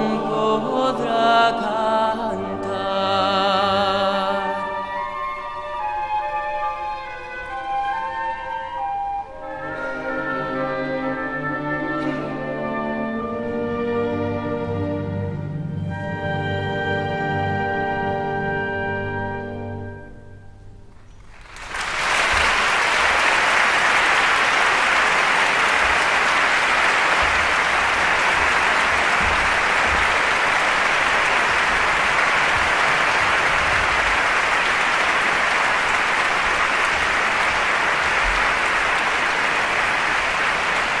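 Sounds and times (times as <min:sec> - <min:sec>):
audience applauding: 0:21.2 - 0:41.0.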